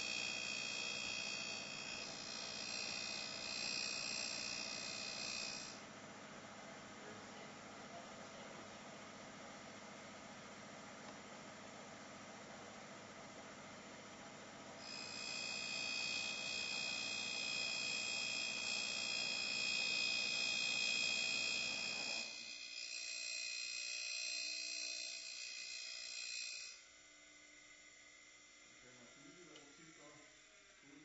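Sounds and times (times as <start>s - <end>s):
high-pitched grinding whine: 0.0s - 5.9s, 14.8s - 31.0s.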